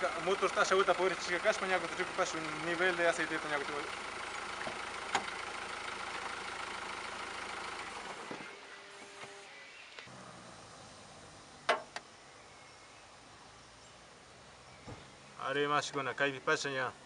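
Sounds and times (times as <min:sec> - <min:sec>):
diesel van engine idling: 0:00.0 - 0:08.4.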